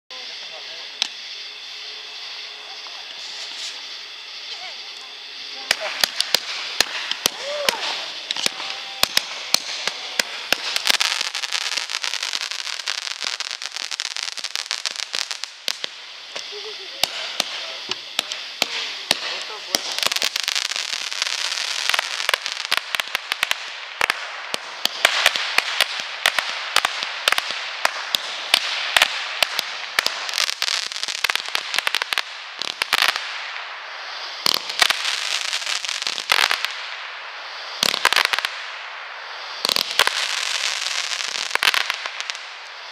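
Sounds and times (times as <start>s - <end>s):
firework launch reports: 0.1s - 42.9s
hiss of burning fireworks: 0.1s - 42.9s.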